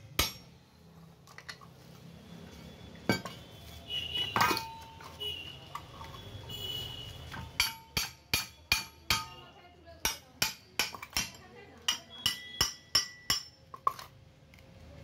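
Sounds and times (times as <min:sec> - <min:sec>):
steel pieces clinking and scraping: 0:04.3 - 0:06.4
sharp metallic clanks: 0:07.4 - 0:09.4.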